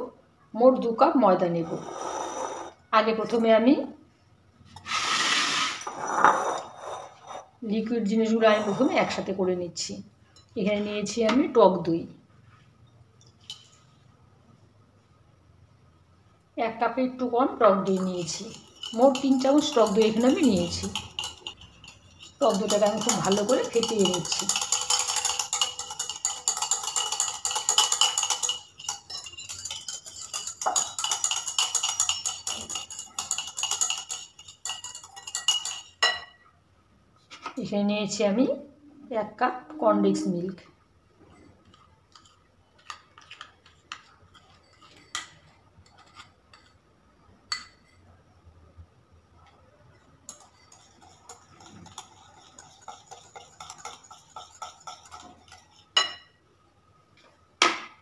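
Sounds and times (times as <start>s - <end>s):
wire whisk clinking against bowl: 17.8s - 36.4s, 50.3s - 56.3s.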